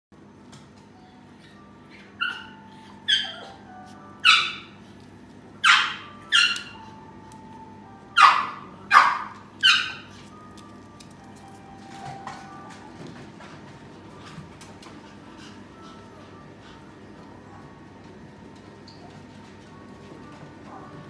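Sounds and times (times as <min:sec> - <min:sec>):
small dog yapping: 0:01.9 - 0:03.6, 0:04.2 - 0:04.7, 0:05.6 - 0:06.8, 0:08.2 - 0:10.1.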